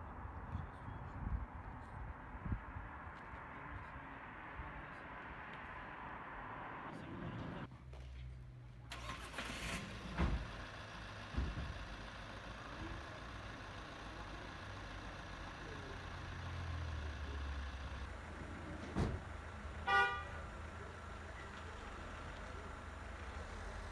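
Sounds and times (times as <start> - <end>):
vehicle engines rumbling: 0.0 - 23.9
car horn toot: 19.8 - 20.4.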